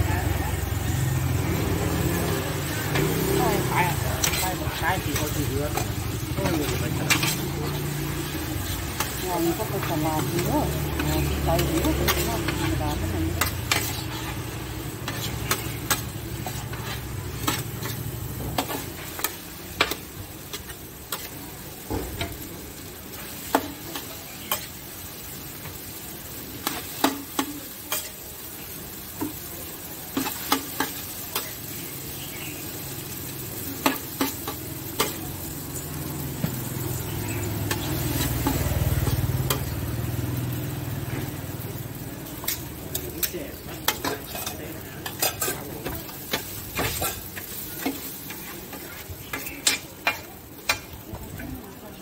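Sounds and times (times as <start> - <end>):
noodles sizzling: 0.0 - 52.0
metal spatula scraping pan: 3.0 - 21.4.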